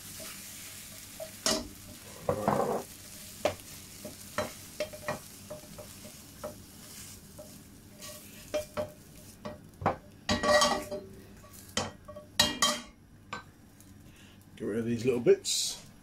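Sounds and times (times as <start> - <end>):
faint oil sizzle: 0.0 - 16.0
spatula scraping a pan: 0.1 - 9.5, 10.3 - 12.8.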